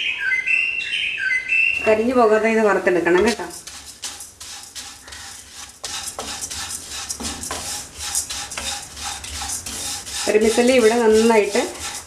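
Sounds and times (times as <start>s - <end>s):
spatula scraping noodles in wok: 3.1s - 12.0s.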